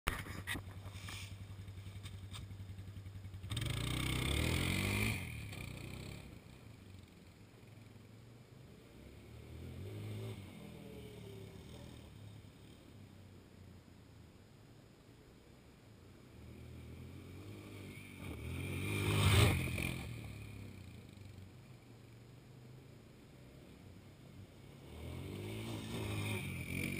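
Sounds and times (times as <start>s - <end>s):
atv engine pulsing: 0.6s - 8.0s
atv engine passing by: 1.0s - 7.9s, 8.7s - 13.3s, 16.2s - 21.6s, 23.4s - 26.9s.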